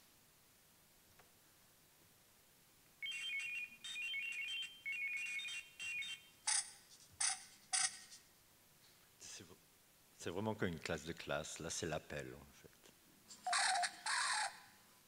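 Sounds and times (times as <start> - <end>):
rapid electronic beeping: 3.0 - 8.0.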